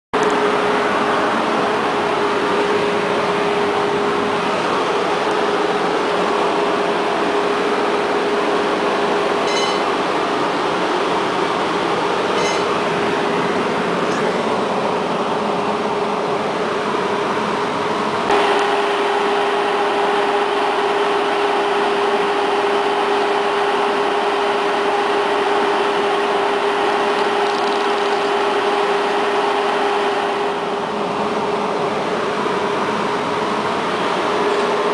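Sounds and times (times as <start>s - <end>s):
mid-pitched whine: 0.2s - 34.9s
tram electric hum: 0.2s - 34.9s
high ringing pings: 9.4s - 10.0s, 12.4s - 12.8s.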